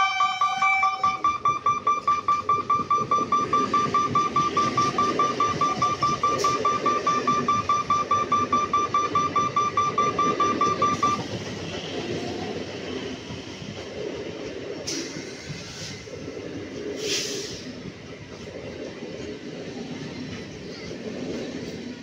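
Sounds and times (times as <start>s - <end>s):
level crossing bell ringing: 0.0s - 11.2s
train rumbling past: 0.0s - 22.0s.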